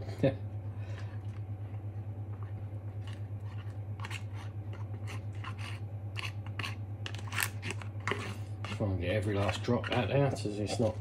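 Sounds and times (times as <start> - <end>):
steady low hum: 0.0 - 11.0
metal utensil scraping plastic tray: 5.1 - 11.0.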